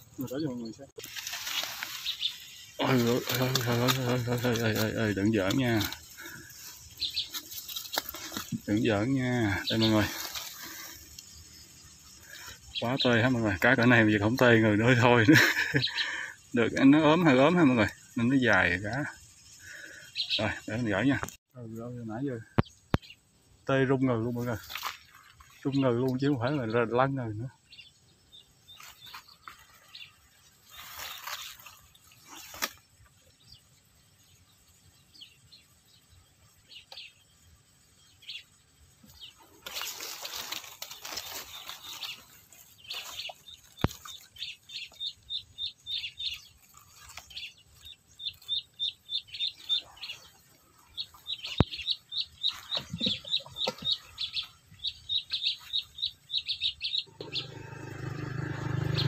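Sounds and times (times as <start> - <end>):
bird chirping: 0.0 - 59.0
rustling: 1.0 - 12.6, 28.8 - 33.0, 39.0 - 54.6.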